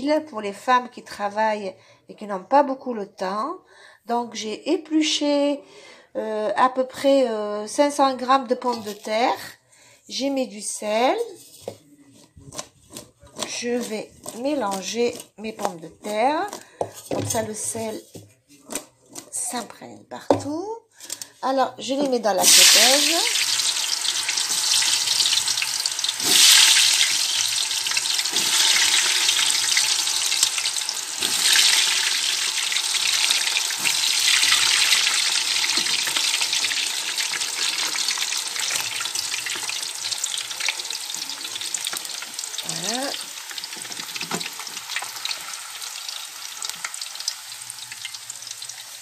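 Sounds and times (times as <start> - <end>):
potatoes sizzling in deep fryer: 22.4 - 49.0.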